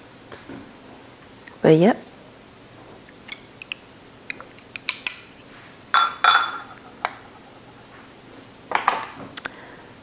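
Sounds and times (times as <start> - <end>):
ceramic bowl and utensils clinking: 5.9 - 6.8.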